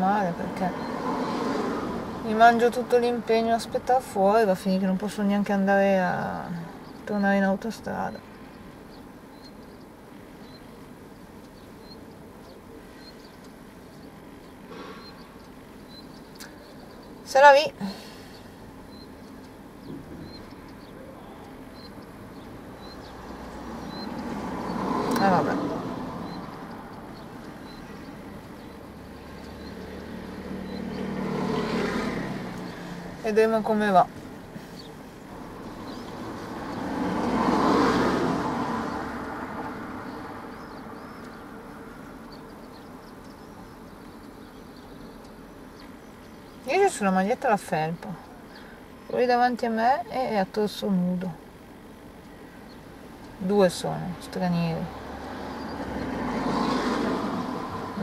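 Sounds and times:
faint hum of vehicles: 0.0s - 58.0s
low steady background noise: 0.0s - 58.0s
high bird chirps: 8.1s - 17.3s, 18.2s - 33.0s.

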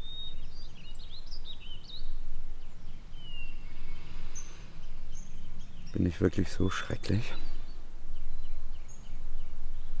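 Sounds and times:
low outdoor rumble: 0.0s - 10.0s
small songbirds chirping: 0.0s - 10.0s.

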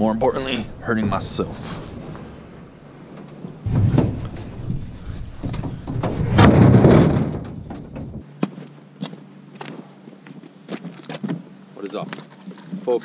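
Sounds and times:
sharp knocks: 1.6s - 8.2s.

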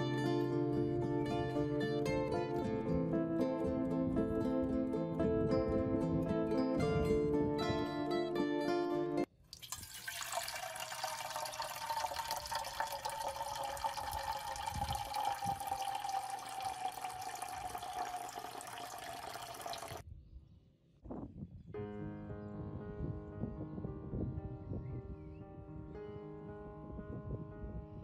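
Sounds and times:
water trickling onto rice: 9.4s - 20.0s.

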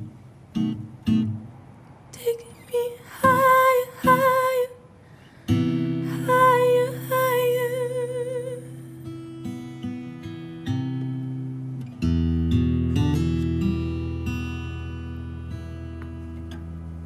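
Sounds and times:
acoustic guitar strumming: 0.0s - 17.0s
woman singing wordlessly: 2.1s - 5.0s, 6.0s - 9.1s.

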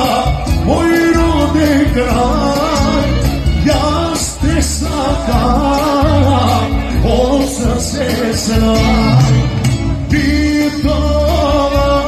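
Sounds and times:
live band playing dance music: 0.0s - 12.0s
person singing: 0.0s - 12.0s
pulsing bass beat: 5.4s - 11.0s.

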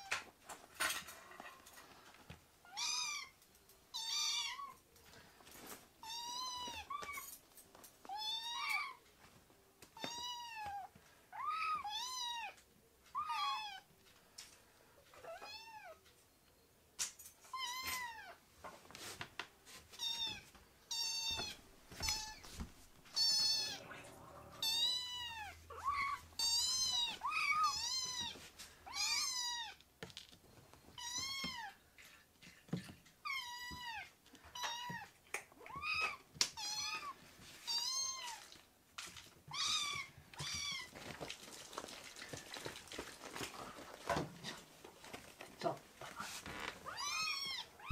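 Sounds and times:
kittens meowing: 23.2s - 29.8s, 46.8s - 47.9s.

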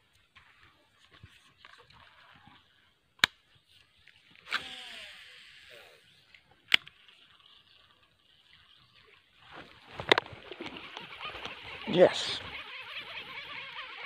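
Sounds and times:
reel spool whirring: 3.7s - 14.0s.

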